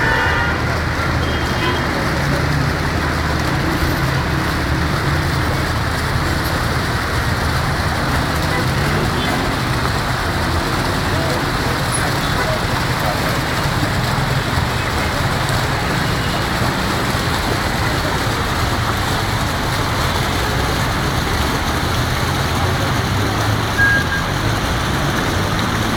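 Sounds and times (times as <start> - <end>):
dense street traffic: 0.0 - 25.9
high beep: 23.8 - 24.3.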